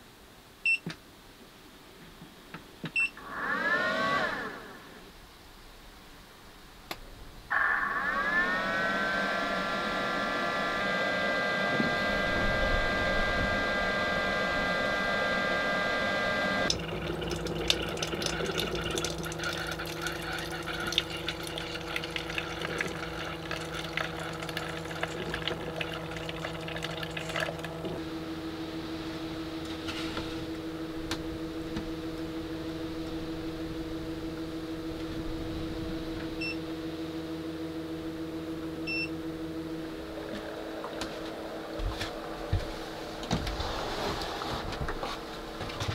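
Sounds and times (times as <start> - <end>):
coffee maker electric whine: 3.2 - 5.1, 7.5 - 45.9
coffee maker hum: 3.2 - 5.1, 7.5 - 45.9
crackling and liquid sounds: 16.7 - 28.0.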